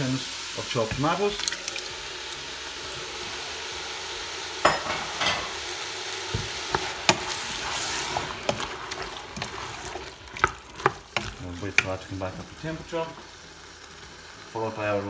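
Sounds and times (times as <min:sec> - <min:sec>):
vegetables sizzling: 0:00.0 - 0:15.0
spoon knocking against pot: 0:04.7 - 0:05.5
wooden spoon stirring in pot: 0:06.2 - 0:13.4.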